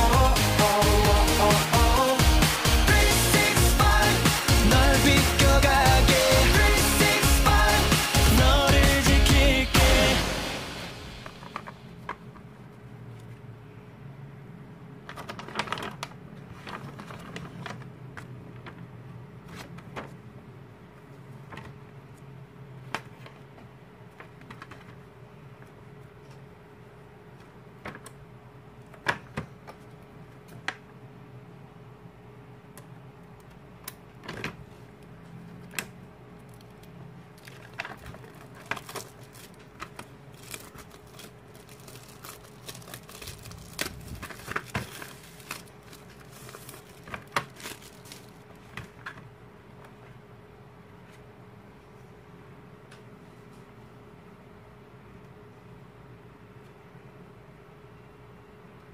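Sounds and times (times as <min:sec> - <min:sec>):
faint steady hum: 0:00.0 - 0:58.9
plastic packaging crinkling: 0:15.0 - 0:18.9, 0:36.4 - 0:49.2
cards and paper handled: 0:15.1 - 0:20.2, 0:36.4 - 0:49.2.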